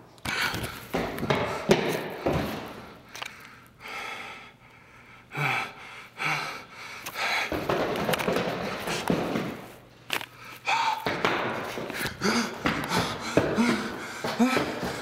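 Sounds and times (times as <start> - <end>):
thumps and knocks: 7.5 - 9.7.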